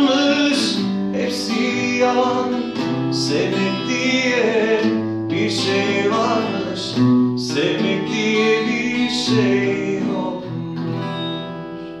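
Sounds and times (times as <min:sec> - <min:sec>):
acoustic guitar strumming: 0:00.0 - 0:12.0.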